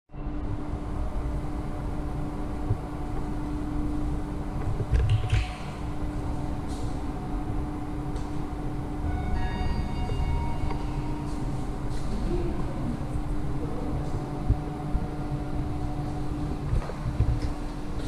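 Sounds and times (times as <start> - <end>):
low hum of elevator lobby: 0.1 - 18.0
elevator arrival chime: 8.8 - 12.0.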